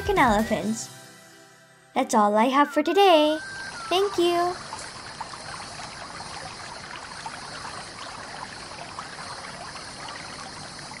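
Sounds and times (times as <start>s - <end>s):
water trickling: 3.2s - 11.0s
light drips and ticks: 4.6s - 11.0s.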